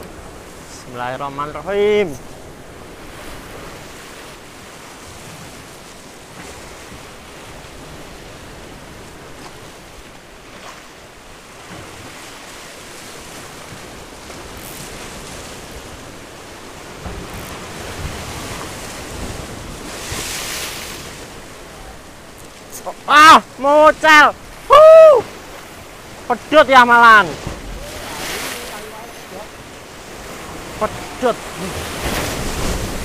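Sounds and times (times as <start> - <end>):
sea waves washing on shore: 0.0 - 33.0
wind rumbling on microphone: 12.8 - 22.6, 27.4 - 33.0.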